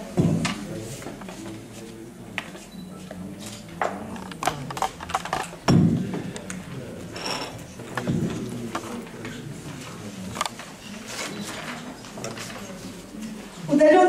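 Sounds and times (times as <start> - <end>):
loud thump on microphone: 5.7 - 6.1.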